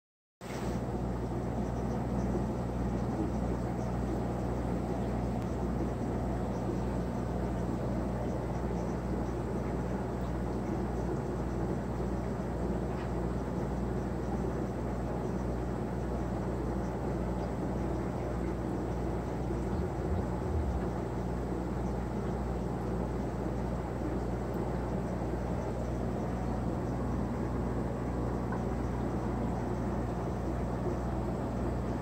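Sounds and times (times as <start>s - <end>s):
constant low hum: 0.4s - 32.0s
air bubbling in aquarium filter: 17.6s - 22.8s.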